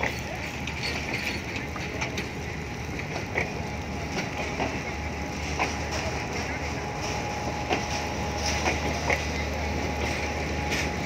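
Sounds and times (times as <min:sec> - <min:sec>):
train rumble: 0:00.0 - 0:11.0
train wheels clicking over joints: 0:00.0 - 0:11.0.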